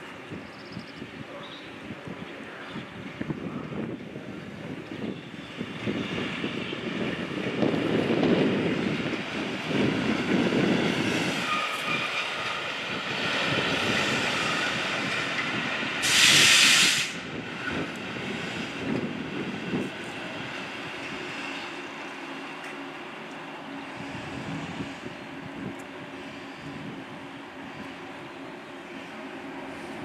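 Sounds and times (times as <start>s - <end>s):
train wheels rumbling: 0.0s - 30.0s
burst of released air: 16.0s - 17.2s.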